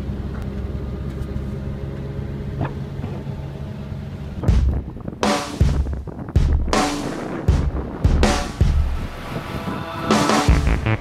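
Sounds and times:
car engine and road rumble: 0:00.0 - 0:09.7
rush of noise: 0:06.6 - 0:11.0.

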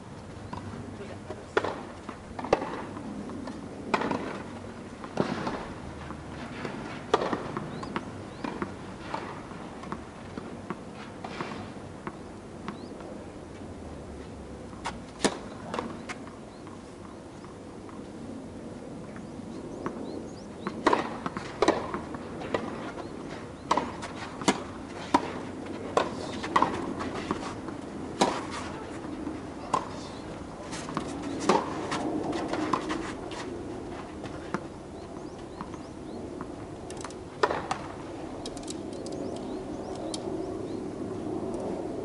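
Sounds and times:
tennis ball bouncing on court: 0:01.5 - 0:10.8, 0:11.4 - 0:13.0, 0:14.7 - 0:16.8, 0:20.6 - 0:28.7, 0:29.7 - 0:30.0, 0:30.8 - 0:33.0, 0:34.2 - 0:36.6, 0:37.4 - 0:37.9
tennis ball struck by rackets: 0:01.6 - 0:12.8, 0:14.8 - 0:16.1, 0:20.6 - 0:22.8, 0:23.7 - 0:27.5, 0:28.1 - 0:28.7, 0:29.7 - 0:30.0, 0:30.8 - 0:32.9, 0:37.4 - 0:37.9.

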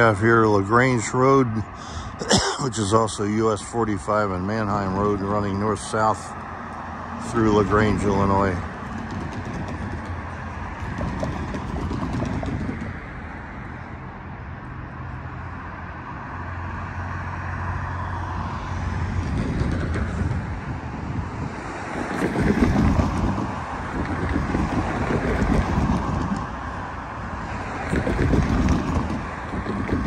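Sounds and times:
cars driving past: 0:00.0 - 0:30.0
low engine hum: 0:00.0 - 0:30.0
tyre noise: 0:04.6 - 0:13.7, 0:18.4 - 0:30.0.

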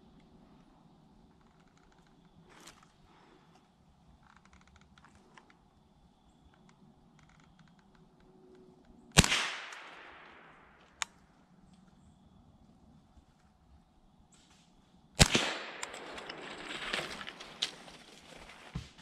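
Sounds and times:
rifle shot with echo: 0:09.2 - 0:11.0, 0:15.2 - 0:16.7.

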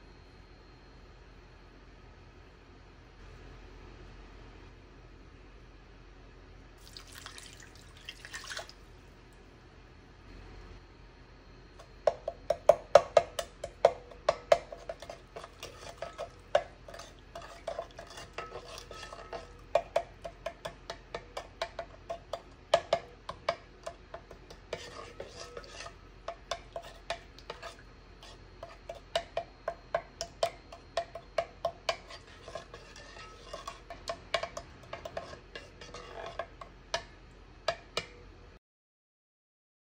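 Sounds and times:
spoon clinking in pot: 0:11.8 - 0:38.3.

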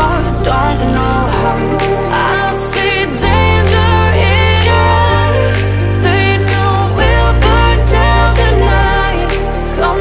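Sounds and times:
pop music with steady beat: 0:00.0 - 0:10.0.

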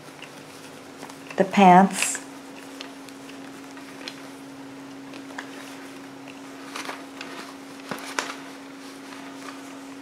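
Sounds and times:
steady hum: 0:00.0 - 0:10.0
soft clicks and rustles: 0:02.4 - 0:10.0.

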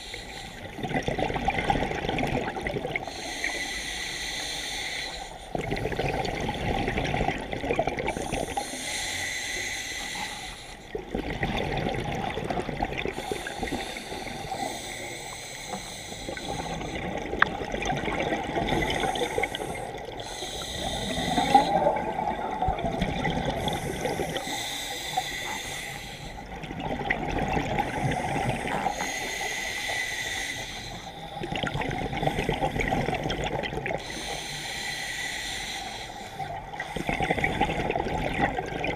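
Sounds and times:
regulator hissing inhale: 0:00.0 - 0:00.7, 0:03.0 - 0:05.6, 0:08.1 - 0:11.0, 0:13.1 - 0:17.1, 0:18.8 - 0:22.0, 0:23.6 - 0:26.5, 0:27.9 - 0:31.5, 0:34.0 - 0:37.7
bubbling exhale: 0:00.0 - 0:38.9.

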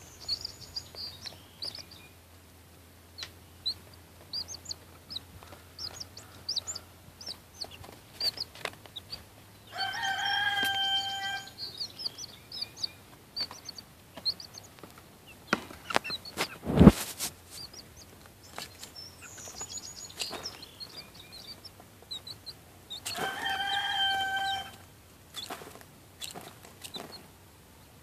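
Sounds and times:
chick peeping: 0:00.0 - 0:28.0
young chicken long call: 0:09.7 - 0:11.8, 0:23.0 - 0:24.9.

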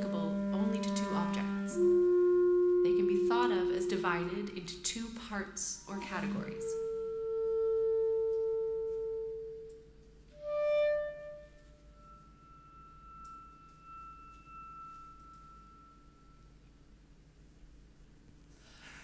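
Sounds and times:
solo clarinet long notes: 0:00.0 - 0:04.3, 0:06.5 - 0:16.6.

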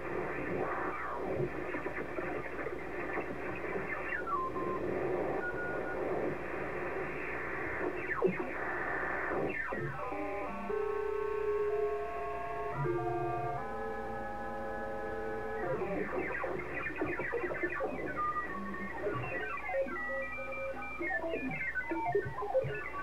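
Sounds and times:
garbled radio voices with hiss: 0:00.0 - 0:10.2, 0:15.6 - 0:20.2.

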